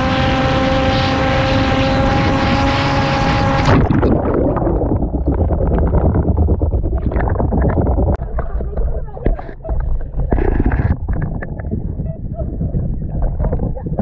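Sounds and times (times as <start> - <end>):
wind rush: 0.0 - 8.3, 10.2 - 14.0
muffled water gurgling: 0.0 - 14.0
splash into water: 3.6 - 4.9.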